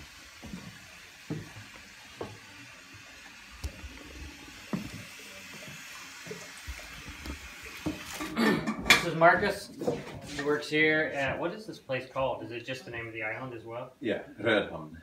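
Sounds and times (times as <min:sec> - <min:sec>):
faint steady hiss: 0:00.0 - 0:15.0
footsteps on wooden floorboards: 0:00.3 - 0:02.5, 0:04.6 - 0:08.0, 0:09.3 - 0:10.5.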